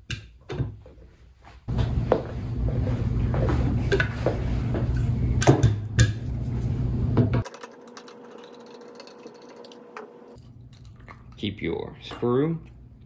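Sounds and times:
hand tools clinking and knocking: 12.0 - 12.6.

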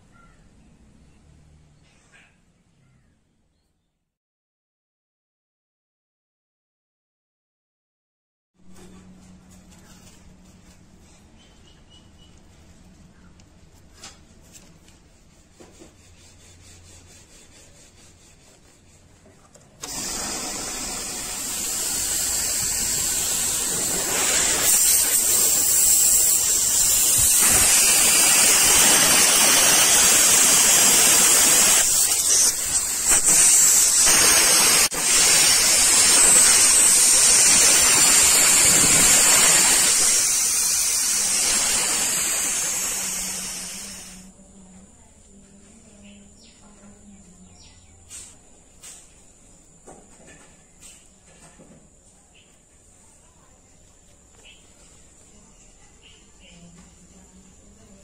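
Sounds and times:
compressed air hissing: 19.8 - 44.3.

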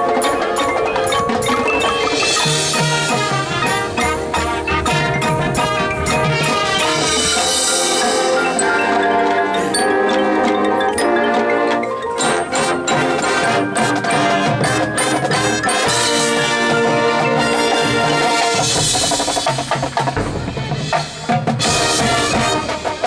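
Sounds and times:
marimbas playing quick notes: 0.0 - 16.2.

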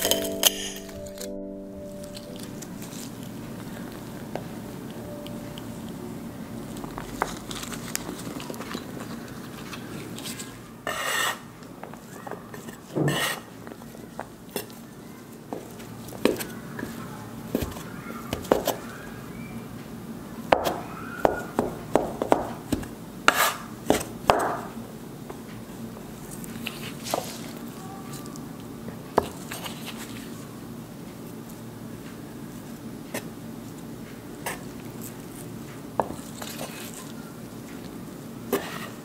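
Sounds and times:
scraper scraping board: 10.9 - 11.4, 12.6 - 13.5, 23.3 - 23.7, 38.5 - 39.0.

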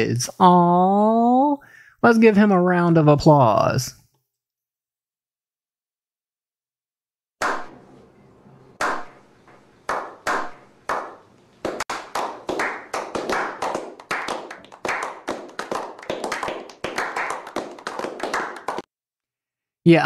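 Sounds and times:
group clapping hands: 7.4 - 7.8, 8.8 - 9.2, 9.8 - 18.9.

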